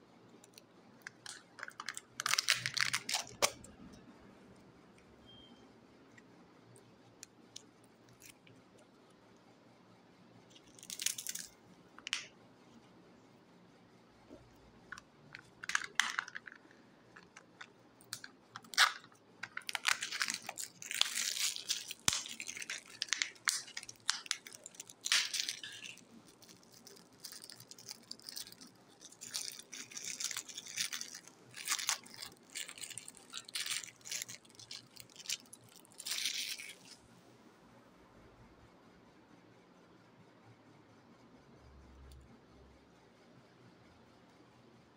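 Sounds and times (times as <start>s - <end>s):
plastic wrapper crinkling and tearing: 0.4s - 3.7s, 10.5s - 12.3s, 14.9s - 37.0s.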